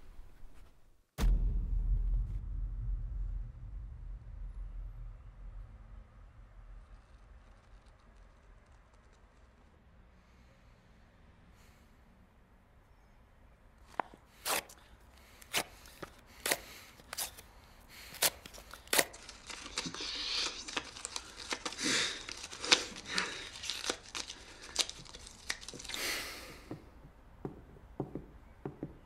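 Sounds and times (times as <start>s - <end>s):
paper tearing: 13.9s - 26.4s
paper rustling: 13.9s - 26.6s.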